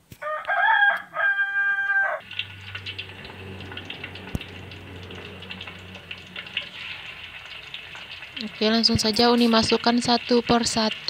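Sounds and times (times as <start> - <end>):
rooster crowing: 0.2 - 2.3
hot oil sizzling in a wok: 2.2 - 11.0.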